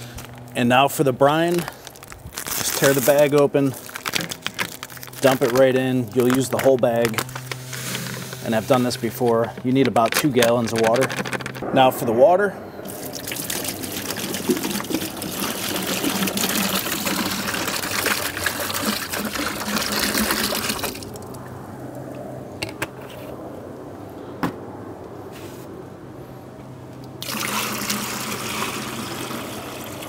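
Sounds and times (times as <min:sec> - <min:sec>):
water pouring into plastic bucket: 0:12.9 - 0:21.4, 0:27.2 - 0:30.0.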